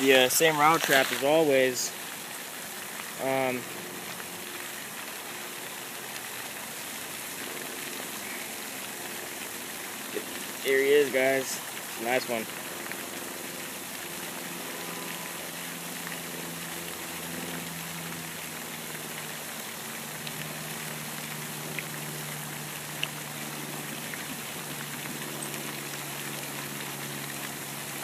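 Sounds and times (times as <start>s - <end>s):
steady hiss: 0.0s - 28.0s
faint low drone: 3.2s - 28.0s.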